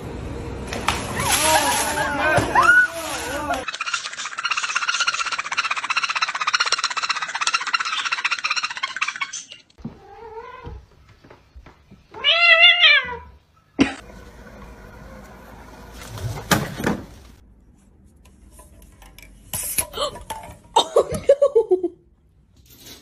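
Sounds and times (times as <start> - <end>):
cat meowing: 12.2 - 13.4.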